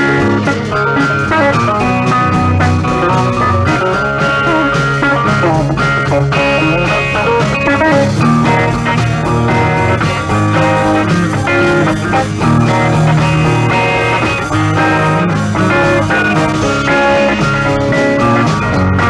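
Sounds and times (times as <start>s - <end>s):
electric guitar: 0.0s - 19.0s
rock band playing: 0.0s - 19.0s.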